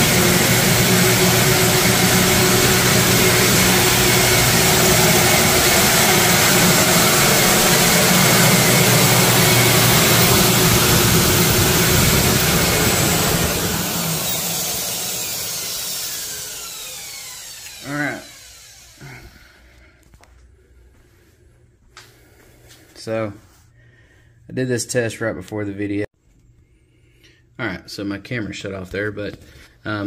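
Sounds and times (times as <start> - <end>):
electric motors whirring: 0.0 - 19.3.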